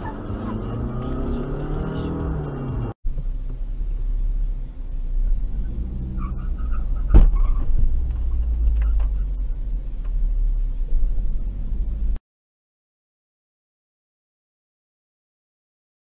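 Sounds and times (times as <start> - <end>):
car cabin rumble on highway: 0.0 - 12.2.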